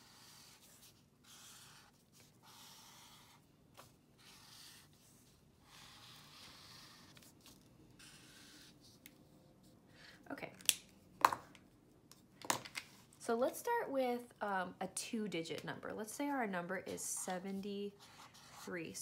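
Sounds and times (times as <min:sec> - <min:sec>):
marker scratching on paper: 0:00.0 - 0:03.4, 0:04.2 - 0:07.3, 0:08.0 - 0:08.8, 0:17.5 - 0:18.7.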